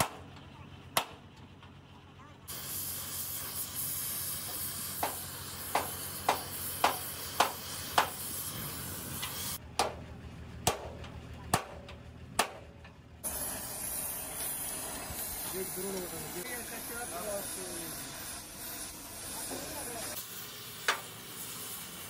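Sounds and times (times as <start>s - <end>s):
hammer striking steel: 0.0s - 0.4s, 4.4s - 8.4s, 9.2s - 10.0s, 10.6s - 12.7s
steady hiss: 2.5s - 9.6s, 13.2s - 22.0s.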